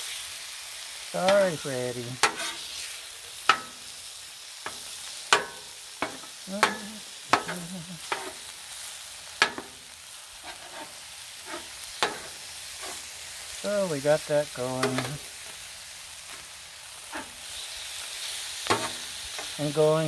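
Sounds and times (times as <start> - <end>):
meat sizzling on a griddle: 0.0 - 20.0
metal spatula scraping: 1.2 - 4.0, 4.6 - 8.5, 9.4 - 13.1, 16.3 - 17.6, 18.6 - 19.6
spatula clacking on griddle: 2.2 - 2.8, 3.4 - 13.1, 14.7 - 15.6, 16.3 - 17.4, 18.6 - 19.6.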